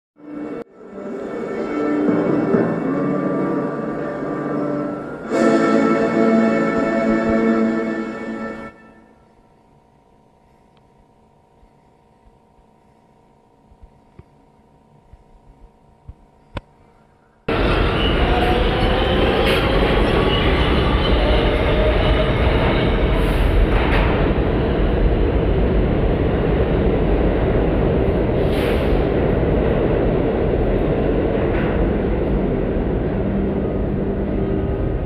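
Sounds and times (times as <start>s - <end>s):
subway train rumbling and rattling: 0.2s - 9.0s, 17.2s - 35.0s.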